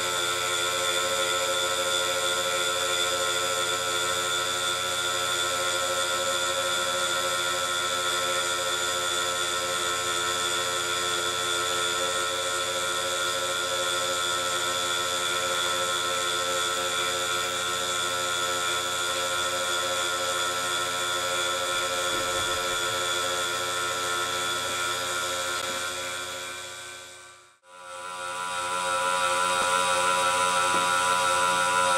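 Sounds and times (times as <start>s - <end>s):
motor-driven cutter whining: 18.9s - 31.9s.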